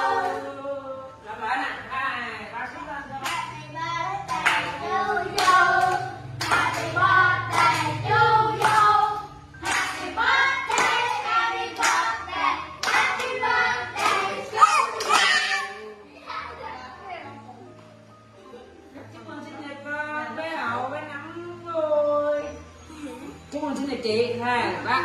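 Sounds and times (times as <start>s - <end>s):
group singing birthday song: 0.0s - 1.3s, 3.1s - 15.8s
people clapping: 4.3s - 8.0s, 8.6s - 9.0s, 9.6s - 12.2s, 12.8s - 15.7s.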